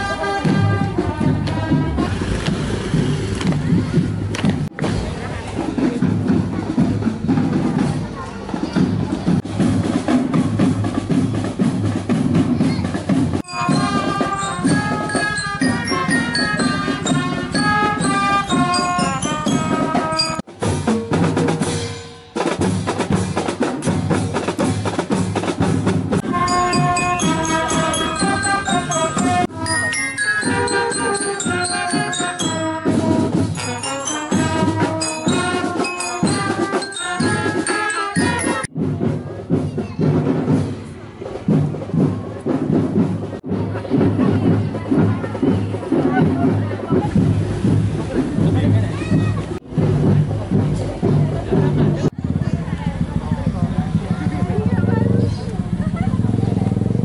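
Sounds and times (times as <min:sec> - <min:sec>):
snare and bass drums beating: 0:00.1 - 0:57.0
glockenspiel melody: 0:13.4 - 0:20.5, 0:26.2 - 0:38.7.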